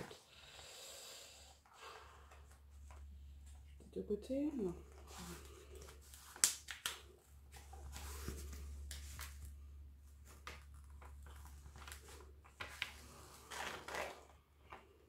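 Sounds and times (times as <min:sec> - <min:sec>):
low steady hum: 0:00.0 - 0:15.0
plastic sheet crinkling: 0:10.2 - 0:14.4.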